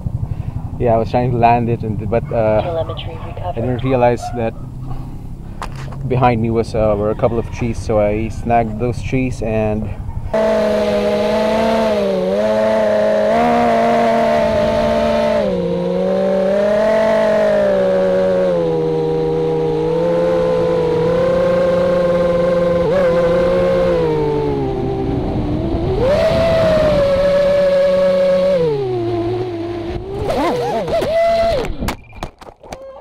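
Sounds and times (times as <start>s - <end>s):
quadcopter motors whining: 13.2s - 31.9s.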